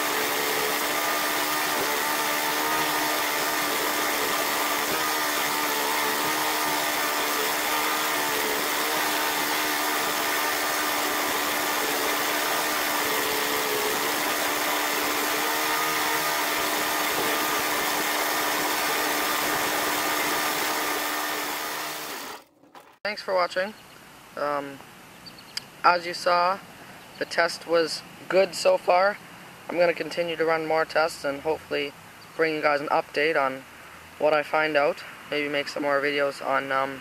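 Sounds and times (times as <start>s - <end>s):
lawn mower engine running: 0.0s - 23.1s.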